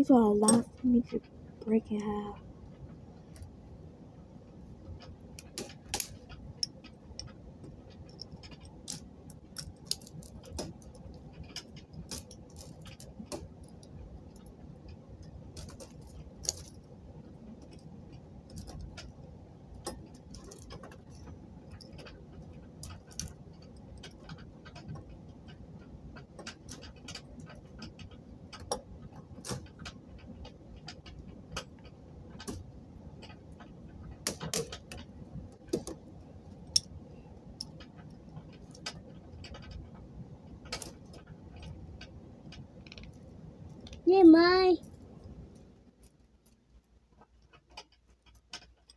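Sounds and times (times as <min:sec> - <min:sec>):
faint low handling rumble: 0:00.0 - 0:48.9
small hard pieces clicking: 0:05.0 - 0:16.8, 0:17.6 - 0:48.9.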